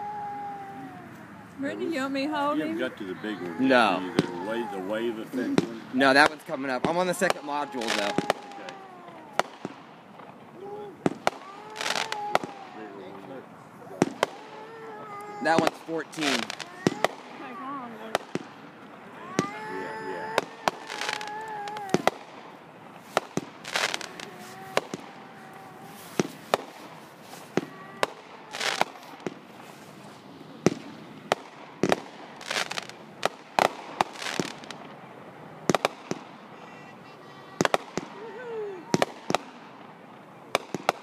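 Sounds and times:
fireworks bursting with bangs: 0:00.0 - 0:41.0.

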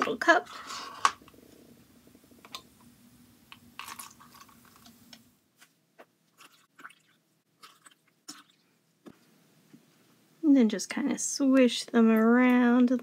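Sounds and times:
liquid trickling into plastic cups: 0:03.5 - 0:05.2, 0:06.3 - 0:08.8.

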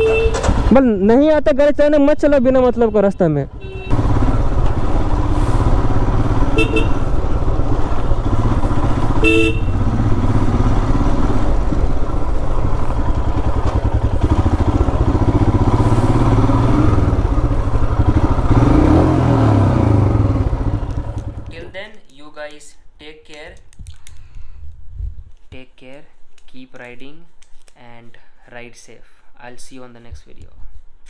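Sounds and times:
vehicle horn: 0:00.0 - 0:00.6, 0:02.8 - 0:04.4, 0:06.3 - 0:07.4, 0:08.9 - 0:10.1
motorcycle engine running: 0:03.5 - 0:21.6.

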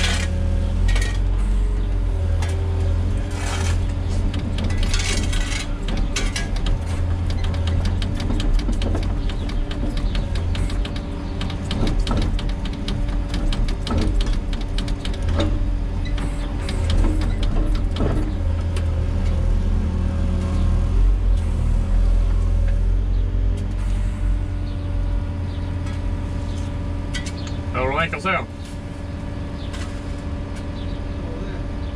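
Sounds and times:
diesel engine running: 0:00.0 - 0:31.9
sharp clicks and knocks: 0:03.6 - 0:19.4.

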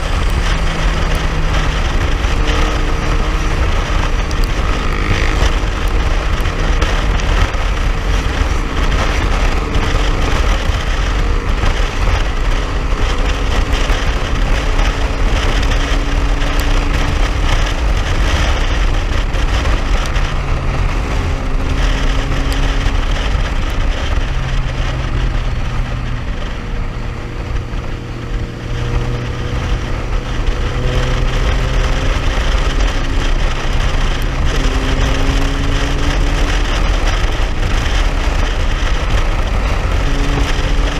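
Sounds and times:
motorcycle engine cruising: 0:00.0 - 0:40.9
wind buffeting microphone: 0:00.0 - 0:40.9.

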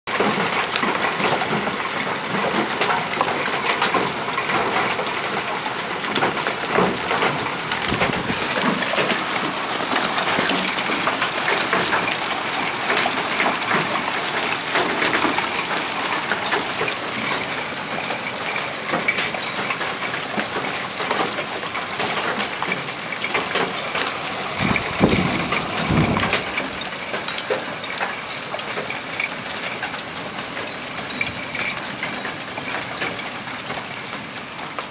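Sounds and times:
hailstones clattering: 0:00.1 - 0:34.9
rain hissing: 0:06.4 - 0:28.5.

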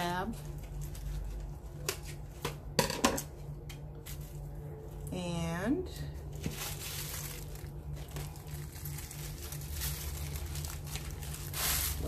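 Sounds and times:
packaging crinkling and rustling: 0:00.0 - 0:02.7, 0:06.2 - 0:12.0.

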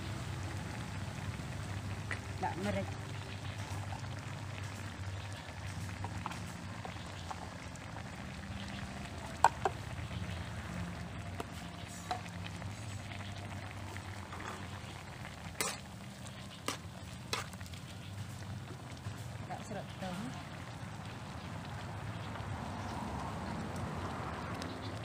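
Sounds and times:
food simmering and bubbling in wok: 0:00.0 - 0:25.0
metal spatula stirring in wok: 0:14.0 - 0:18.1.

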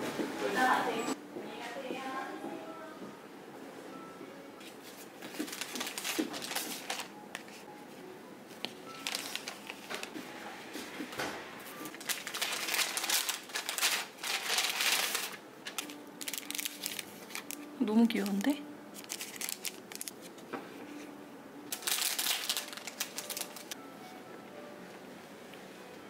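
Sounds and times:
paper and plastic packaging rustling: 0:04.6 - 0:07.7, 0:08.5 - 0:21.1, 0:21.7 - 0:23.8.

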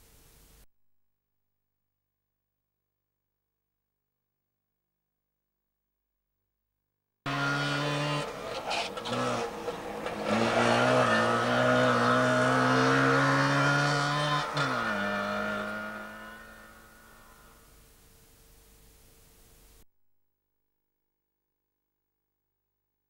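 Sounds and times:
two-stroke car engine revving: 0:07.3 - 0:17.6.

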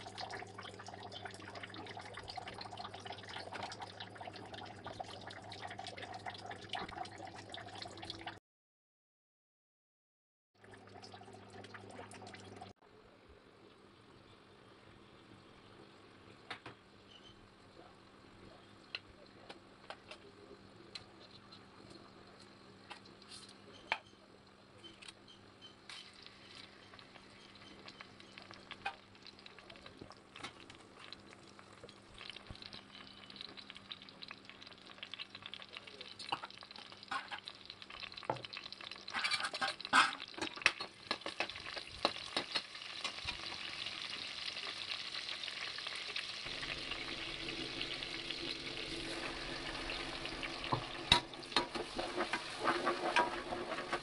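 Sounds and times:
spices crackling in hot oil: 0:16.9 - 0:54.0.

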